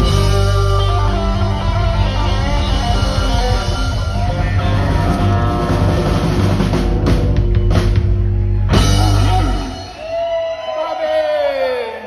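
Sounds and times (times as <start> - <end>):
blues harmonica: 0.0 - 6.5
electric guitar: 0.0 - 10.0
bass: 0.0 - 10.3
drums: 0.0 - 11.6.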